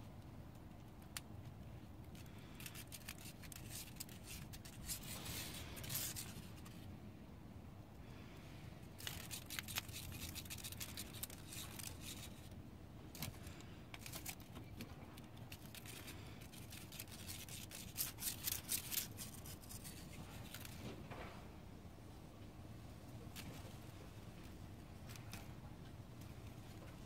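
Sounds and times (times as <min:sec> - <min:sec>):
dry grass stalk clicking and rustling: 0:02.1 - 0:06.8, 0:09.0 - 0:12.5, 0:15.2 - 0:20.8.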